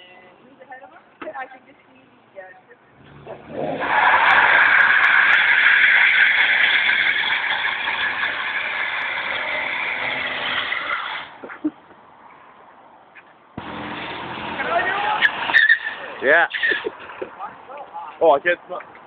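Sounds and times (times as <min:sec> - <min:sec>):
car engine revving hard: 0:03.0 - 0:11.1
tyres spinning on wet concrete: 0:03.4 - 0:11.4.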